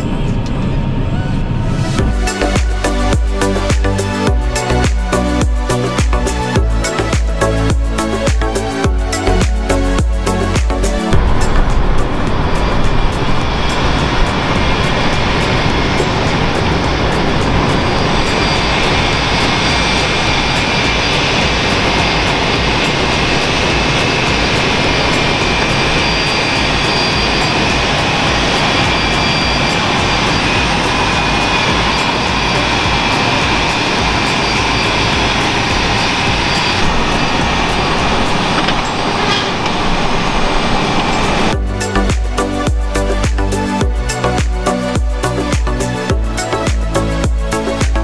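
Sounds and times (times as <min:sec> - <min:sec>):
tractor engine drone: 0:00.0 - 0:48.0
driveline and implement noise: 0:10.5 - 0:42.5.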